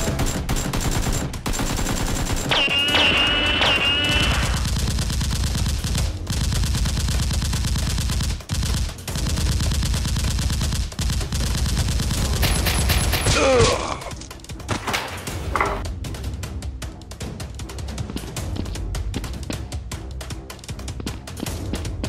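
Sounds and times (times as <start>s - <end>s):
automatic gunfire: 0.0s - 13.3s.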